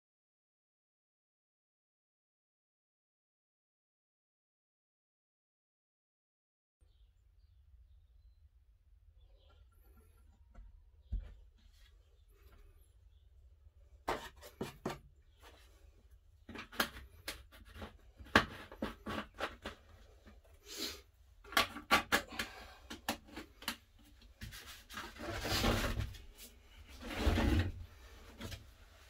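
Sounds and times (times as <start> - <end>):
plastic scraping rustle: 24.4 - 29.0.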